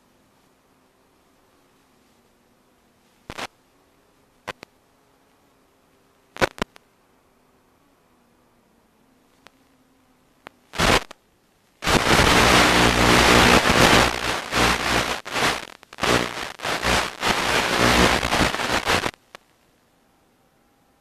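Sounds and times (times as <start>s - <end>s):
static hiss: 0.0s - 19.8s
low buzz: 11.8s - 19.2s.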